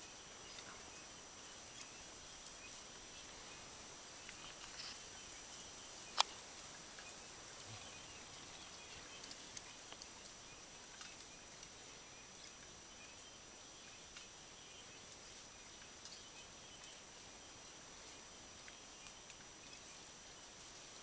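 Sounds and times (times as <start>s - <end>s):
steady high hiss: 0.0s - 21.0s
faint ticks: 6.0s - 11.8s, 18.1s - 20.0s.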